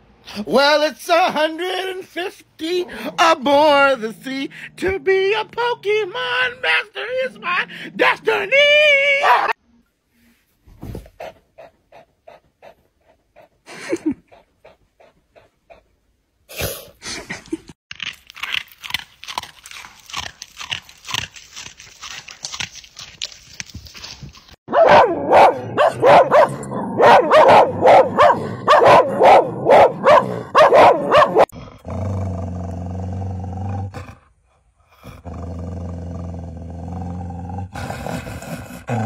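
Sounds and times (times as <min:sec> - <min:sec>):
dog howling: 0:09.1 - 0:09.6
dog barking: 0:09.2 - 0:09.6, 0:24.7 - 0:31.5
dog panting: 0:11.2 - 0:13.6.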